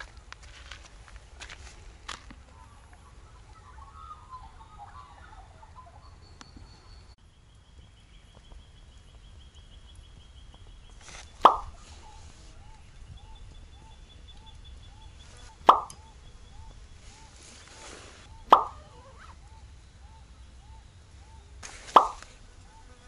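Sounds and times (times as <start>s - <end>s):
faint chirping: 2.5s - 23.0s
pop sound effects: 11.4s - 11.7s, 15.6s - 16.0s, 18.5s - 18.8s, 21.9s - 22.2s.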